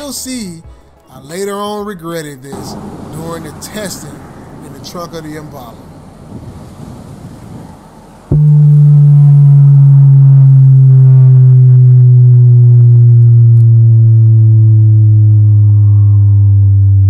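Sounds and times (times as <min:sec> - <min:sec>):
subwoofer bass sine sweep: 0:08.3 - 0:17.0.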